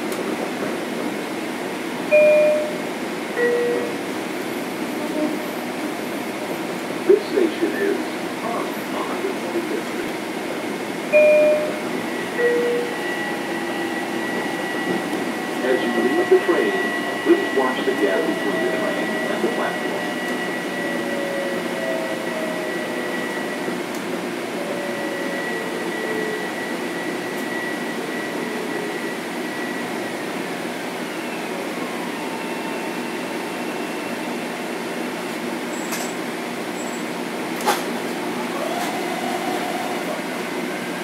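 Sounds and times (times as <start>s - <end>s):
train interior hum and rush: 0.0s - 41.0s.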